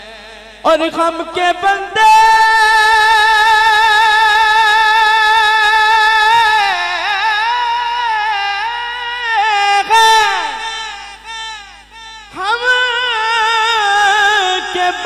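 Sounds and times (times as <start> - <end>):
man singing unaccompanied hymn: 0.0 - 15.0.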